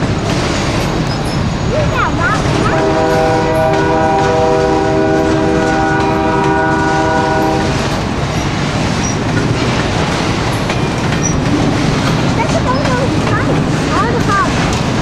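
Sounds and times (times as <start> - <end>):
train cars rumbling on rails: 0.0 - 15.0
locomotive horn chord: 2.5 - 7.9.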